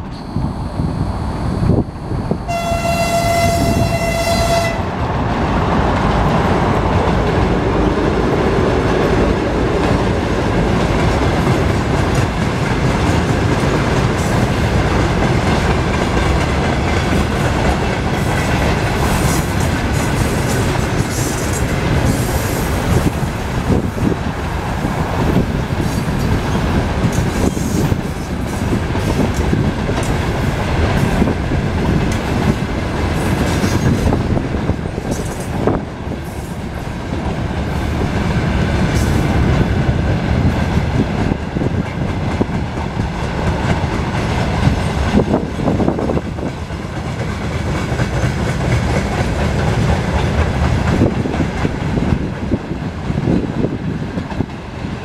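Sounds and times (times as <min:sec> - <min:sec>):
diesel locomotive passing: 0:00.0 - 0:55.0
train wheels clacking over rail joints: 0:05.7 - 0:24.2, 0:25.3 - 0:55.0.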